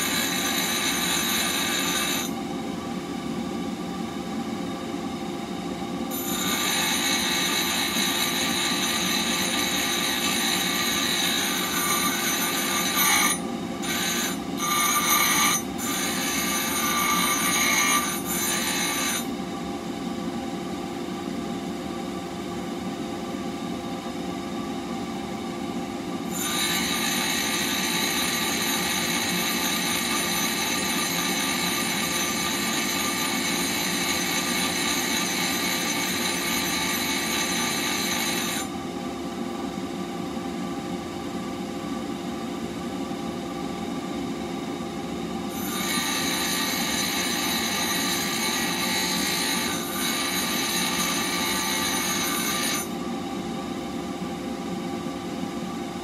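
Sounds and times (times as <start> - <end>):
steel blade grinding: 0.0 - 2.4, 6.1 - 19.3, 26.3 - 38.7, 45.5 - 53.0.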